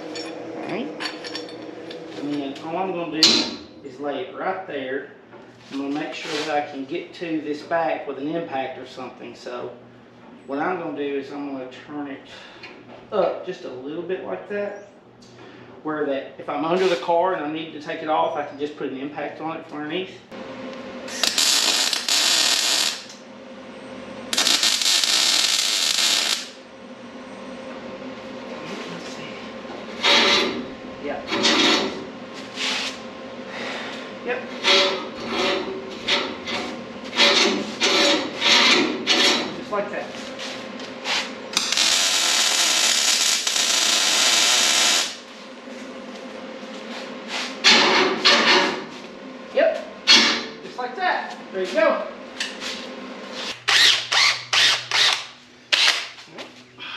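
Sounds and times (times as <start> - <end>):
angle grinder grinding steel: 21.1 - 23.2
welding arc crackling: 21.1 - 23.2, 24.3 - 26.6, 41.0 - 45.3.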